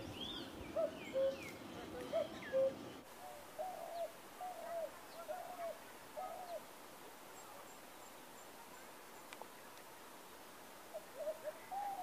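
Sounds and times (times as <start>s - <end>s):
dove cooing: 0.0s - 6.6s, 10.9s - 12.0s.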